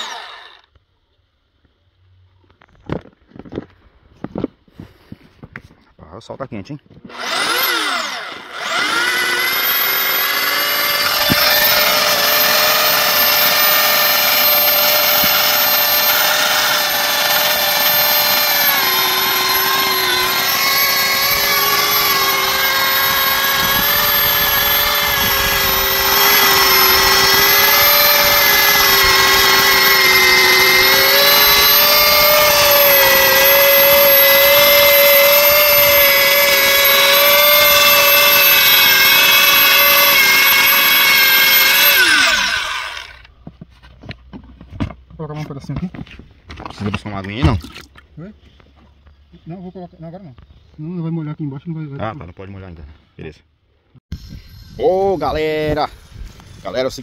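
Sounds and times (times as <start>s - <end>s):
plastic welder motor whine: 0.0s - 0.8s, 7.0s - 43.3s.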